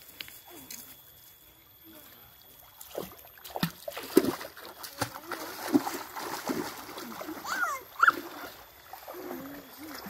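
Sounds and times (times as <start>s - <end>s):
children wading through water: 1.9s - 10.0s
stick slapping water: 2.8s - 7.3s.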